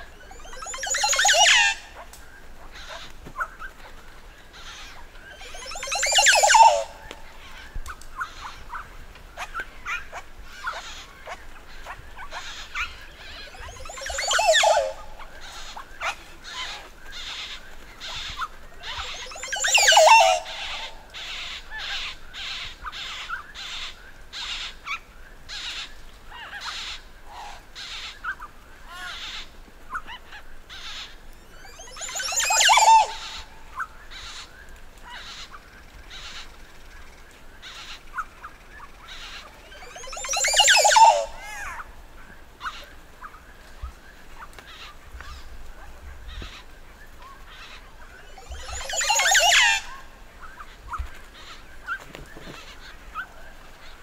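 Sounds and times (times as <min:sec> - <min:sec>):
bird display calls: 0:00.0 - 0:54.0
short sharp bird calls: 0:39.2 - 0:41.8.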